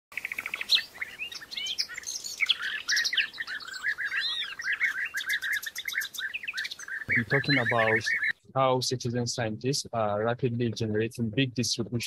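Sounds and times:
birds singing and calling: 0:00.1 - 0:08.4
rapid repeated bird notes: 0:00.1 - 0:08.4.

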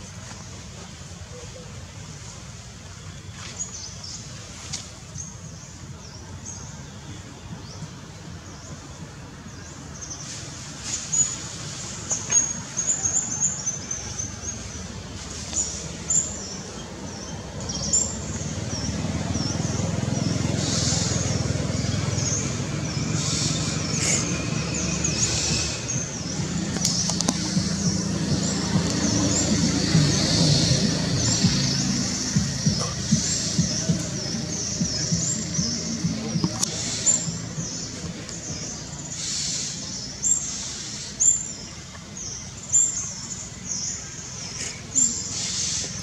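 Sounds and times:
small birds chirping: 0:02.9 - 0:46.0.

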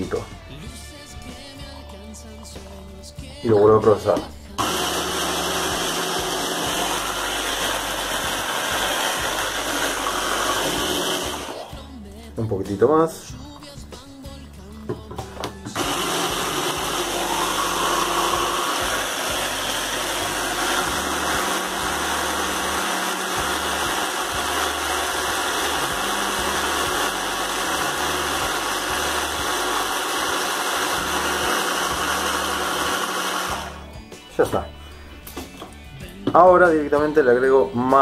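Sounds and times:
hand blender chopper running: 0:04.6 - 0:11.8, 0:15.8 - 0:33.9.

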